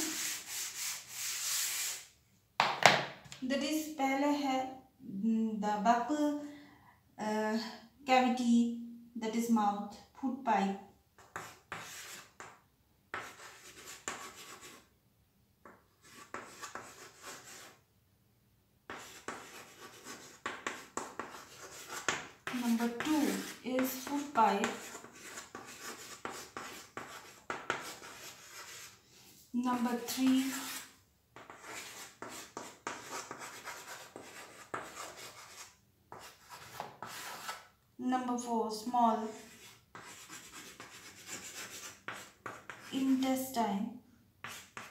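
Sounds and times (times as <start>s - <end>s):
chalk scratching on chalkboard: 0.0s - 2.1s, 11.2s - 14.9s, 15.6s - 17.8s, 18.9s - 37.7s, 39.2s - 43.2s, 44.4s - 44.9s.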